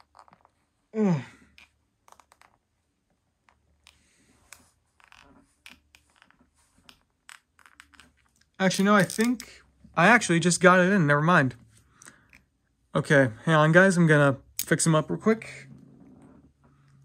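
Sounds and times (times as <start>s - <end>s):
plastic figure clicks and scratches: 3.4s - 9.5s.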